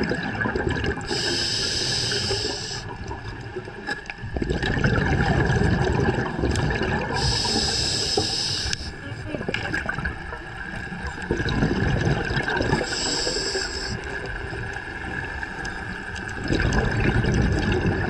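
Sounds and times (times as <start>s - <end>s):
exhaled bubbles rushing: 0.0s - 8.4s, 9.1s - 18.0s
regulator hissing inhale: 1.1s - 3.0s, 7.2s - 9.0s, 12.8s - 14.1s.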